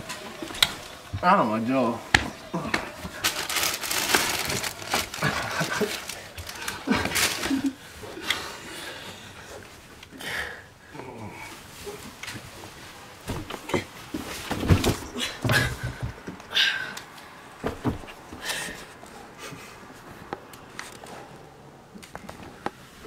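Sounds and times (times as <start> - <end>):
clothing rustle: 0.0 - 10.0, 11.3 - 16.2
thumps and knocks of wrestling: 13.2 - 16.4, 17.6 - 18.9.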